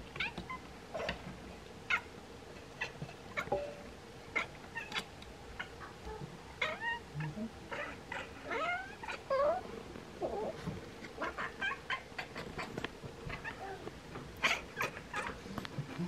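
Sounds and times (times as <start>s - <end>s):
cat chirping and meowing: 4.4s - 5.9s, 6.6s - 9.6s.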